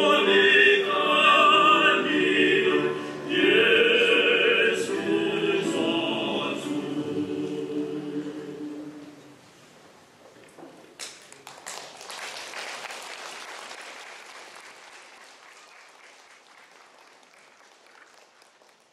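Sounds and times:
audience applause: 11.1s - 18.9s.

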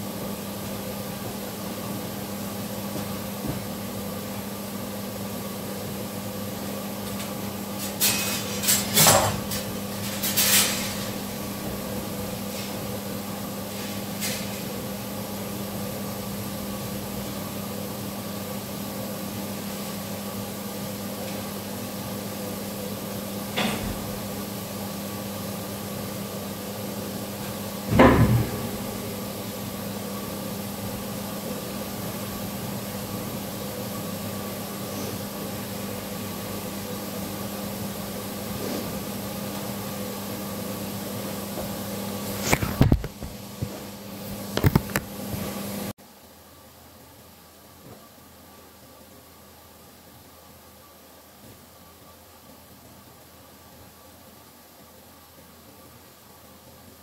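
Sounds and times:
steady mechanical hum: 0.0s - 57.0s
loud thump: 27.9s - 28.6s.

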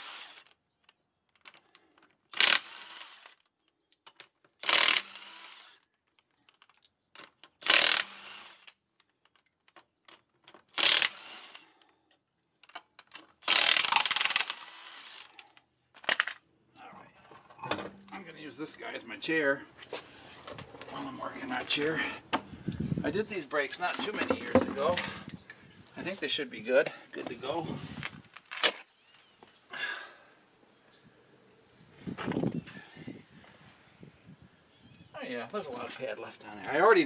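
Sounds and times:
impact wrench bursts: 2.4s - 3.4s, 4.6s - 5.8s, 7.6s - 8.7s, 10.8s - 11.7s, 13.4s - 15.4s.

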